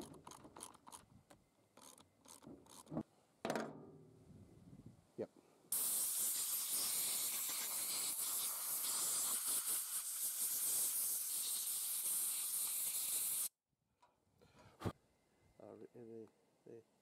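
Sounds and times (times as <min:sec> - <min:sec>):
compressed air gun hissing: 0:05.7 - 0:13.6.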